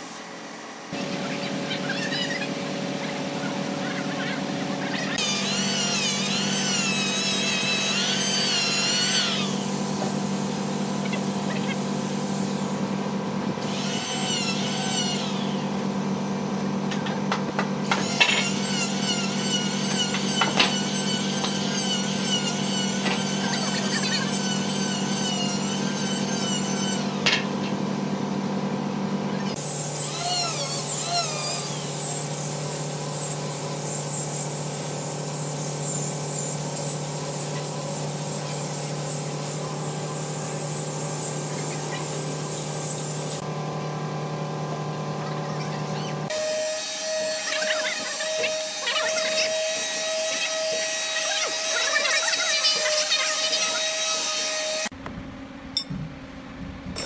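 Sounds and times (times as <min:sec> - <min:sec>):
power tools on wood: 0:00.9 - 0:13.0, 0:13.6 - 0:27.9, 0:29.3 - 0:43.5, 0:45.9 - 0:55.0.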